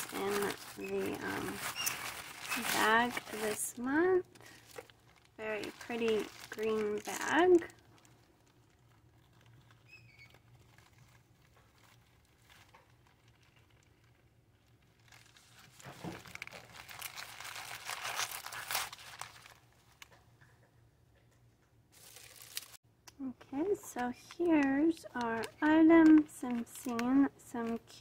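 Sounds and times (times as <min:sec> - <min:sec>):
fabric bag rustling: 0:00.0 - 0:09.8, 0:15.0 - 0:19.6, 0:22.0 - 0:22.8
plastic bags crinkling: 0:00.0 - 0:20.2, 0:21.9 - 0:22.8, 0:23.8 - 0:28.0.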